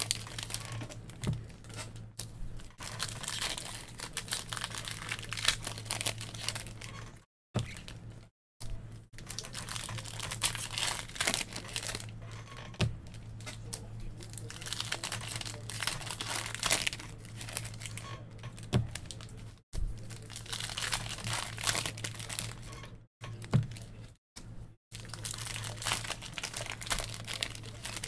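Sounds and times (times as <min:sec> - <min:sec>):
foil wrapper crinkling and tearing: 0:00.0 - 0:08.0, 0:09.2 - 0:12.4, 0:13.1 - 0:24.1, 0:24.9 - 0:28.0
cards rustling: 0:13.0 - 0:28.0.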